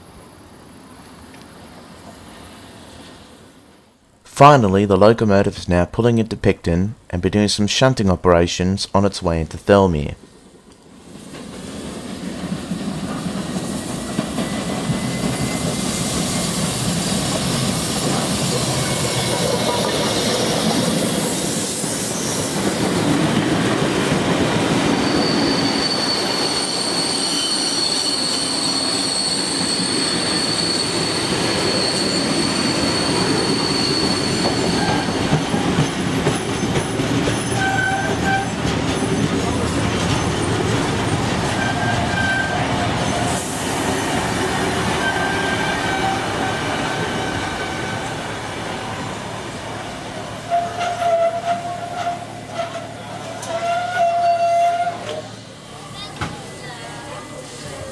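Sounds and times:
steam train rolling past: 0:00.0 - 0:04.0, 0:10.2 - 0:57.9
train wheels squealing: 0:13.5 - 0:22.8, 0:24.7 - 0:48.2, 0:50.5 - 0:55.4.

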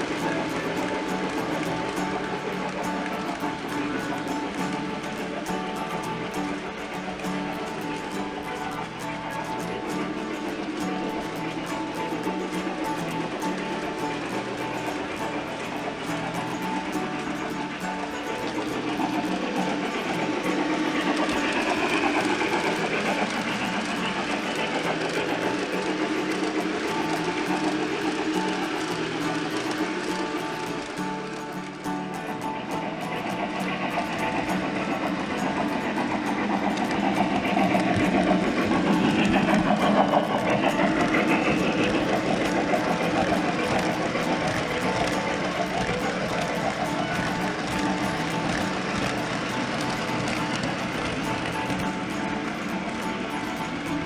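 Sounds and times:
model train wheels rattling on rail: 0:00.0 - 0:54.0.

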